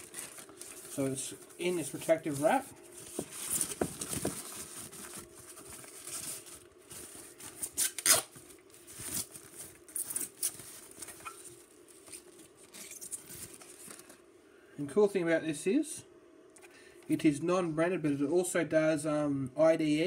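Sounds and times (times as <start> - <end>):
plastic wrap rustling and crinkling: 0.0 - 14.2.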